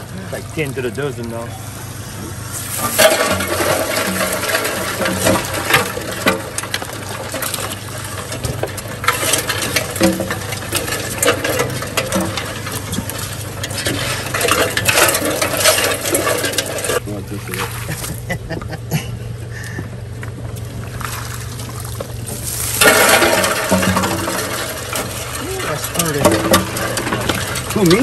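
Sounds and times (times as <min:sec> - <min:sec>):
crawfish shells clattering on metal: 0:02.8 - 0:17.0, 0:22.0 - 0:28.0.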